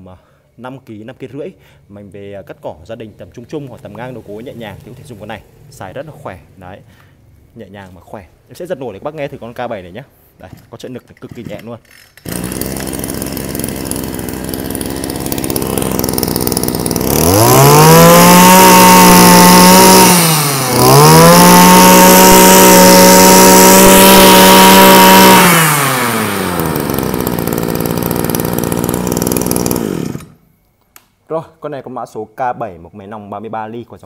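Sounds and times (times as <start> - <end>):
brush cutter engine revving: 11.3 - 30.4.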